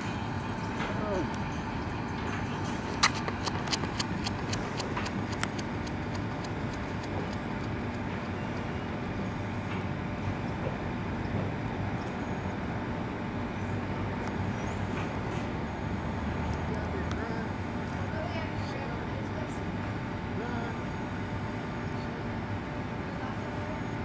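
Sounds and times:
steady outdoor noise: 0:00.0 - 0:24.0
footsteps on rubber track: 0:02.2 - 0:09.8.

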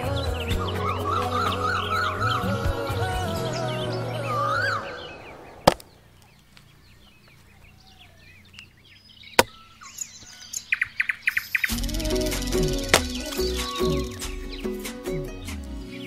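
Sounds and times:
birds chirping: 0:00.0 - 0:16.0
axe chopping log: 0:05.6 - 0:05.9, 0:09.4 - 0:09.6, 0:12.9 - 0:13.6.

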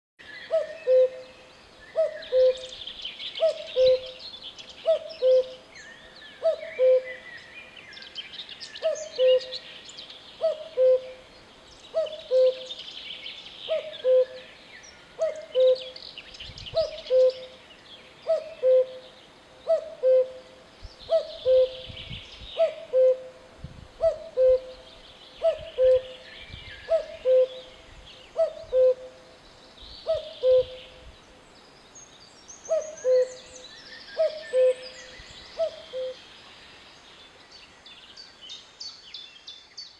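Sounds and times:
cuckoo calling: 0:00.5 - 0:01.3, 0:01.9 - 0:02.8, 0:03.4 - 0:04.2, 0:04.8 - 0:05.6, 0:06.4 - 0:07.2, 0:08.8 - 0:09.6, 0:10.4 - 0:11.2, 0:11.9 - 0:12.8, 0:13.7 - 0:14.5, 0:15.2 - 0:16.0, 0:16.7 - 0:17.6, 0:18.2 - 0:20.5, 0:21.1 - 0:22.0, 0:22.6 - 0:23.3, 0:24.0 - 0:26.3, 0:26.9 - 0:29.2, 0:30.0 - 0:31.0, 0:32.7 - 0:36.2.

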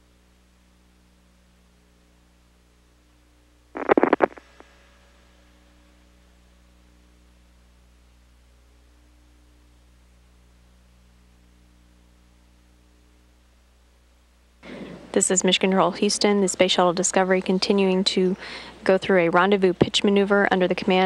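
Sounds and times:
steady electrical hum: 0:00.0 - 0:21.0
crackling burst of static: 0:03.8 - 0:04.6.

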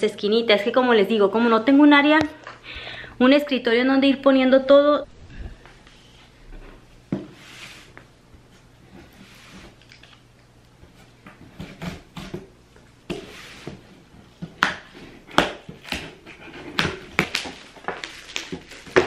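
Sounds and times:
tape ripping: 0:15.4 - 0:19.0.

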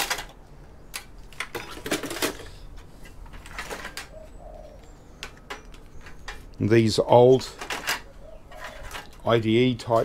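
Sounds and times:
metal computer parts clattering: 0:00.0 - 0:04.2, 0:07.4 - 0:09.2.

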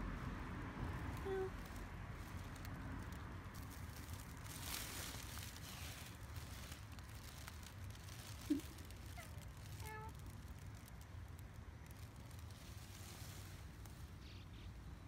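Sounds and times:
low steady rumble: 0:00.0 - 0:15.0
hand stroking cat fur: 0:12.1 - 0:14.2.

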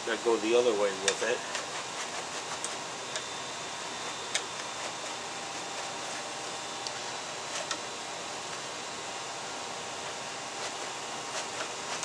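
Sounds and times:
steady hiss: 0:00.0 - 0:12.0
hide scraping over blade: 0:01.1 - 0:02.9, 0:03.9 - 0:06.4, 0:07.3 - 0:07.9, 0:10.0 - 0:12.0.

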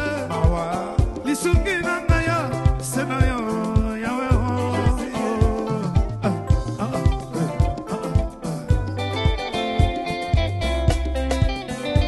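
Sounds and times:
bass: 0:00.0 - 0:12.0
electric guitars: 0:00.0 - 0:12.0
keyboard: 0:00.0 - 0:12.0
kick drum beat: 0:00.0 - 0:12.0.

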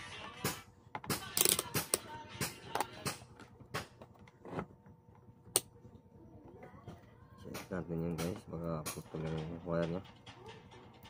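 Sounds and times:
faint background music: 0:00.0 - 0:11.0
clicks and knocks of handling: 0:06.6 - 0:11.0.

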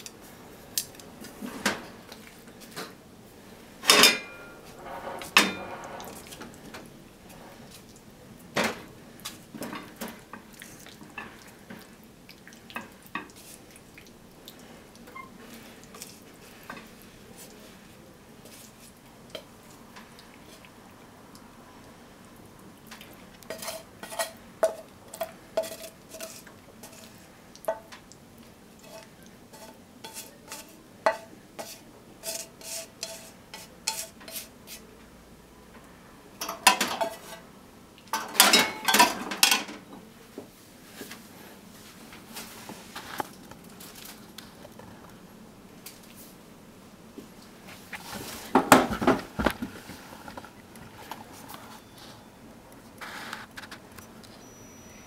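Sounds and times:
utensils clinking on pan and bowl: 0:03.8 - 0:06.3, 0:23.5 - 0:27.9, 0:28.8 - 0:34.5, 0:36.4 - 0:37.4, 0:38.1 - 0:39.8.

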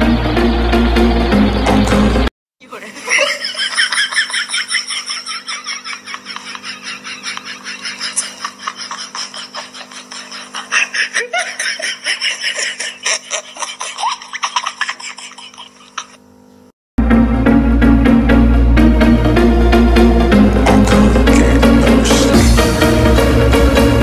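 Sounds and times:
person laughing hard: 0:02.9 - 0:16.2.

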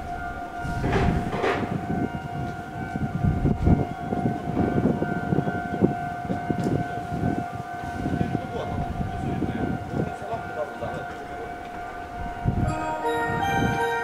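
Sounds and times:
steady high tone: 0:00.0 - 0:04.5, 0:10.6 - 0:14.0
train wheels rumbling on rails: 0:00.0 - 0:12.7.

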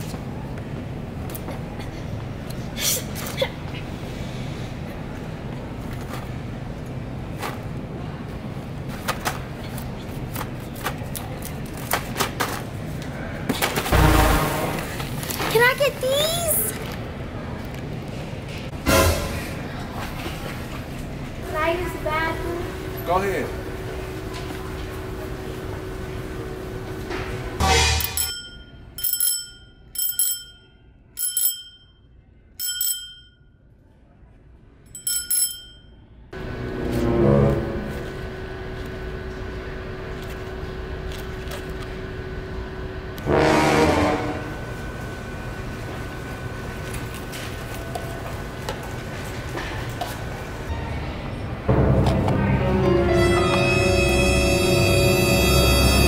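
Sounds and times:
low background hum: 0:00.0 - 0:56.0
bicycle bell dings: 0:27.7 - 0:33.6, 0:34.9 - 0:36.2.

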